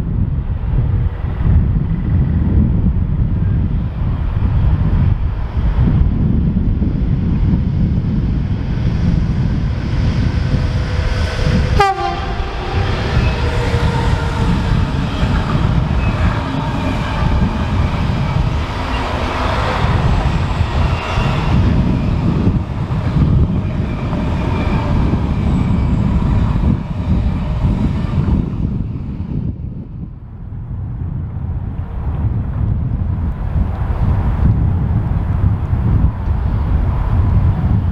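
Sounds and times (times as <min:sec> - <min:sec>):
freight train wheels rumbling: 0:00.0 - 0:37.9
wind on microphone: 0:00.0 - 0:37.9
high steady wheel tones: 0:06.3 - 0:30.0.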